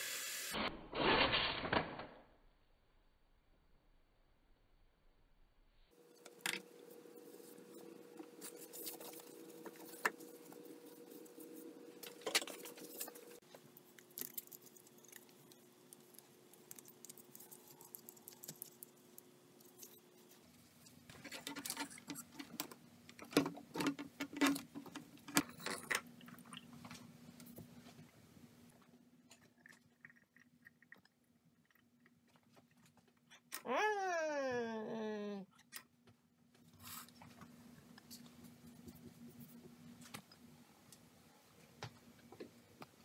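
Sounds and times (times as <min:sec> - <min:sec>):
plastic parts rustling and clicking: 0:20.8 - 0:26.1.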